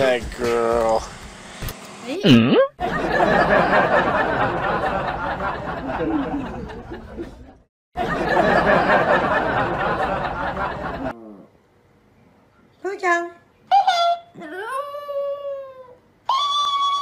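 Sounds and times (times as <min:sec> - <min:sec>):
crowd laughing and chattering: 0:02.8 - 0:11.2.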